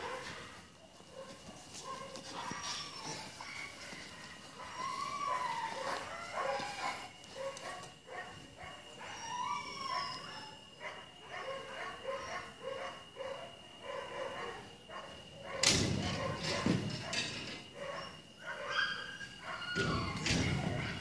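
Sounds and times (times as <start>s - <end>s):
dog whining and yipping: 2.6s - 7.1s, 9.0s - 10.6s, 17.9s - 21.0s.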